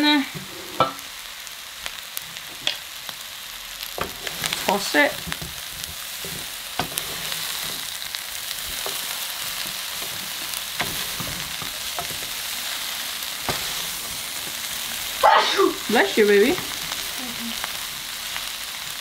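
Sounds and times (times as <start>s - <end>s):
stir-fry sizzling in a pan: 0.0s - 19.0s
wooden utensils knocking on pan: 0.4s - 1.0s, 4.0s - 7.9s, 8.6s - 12.4s, 13.4s - 15.0s.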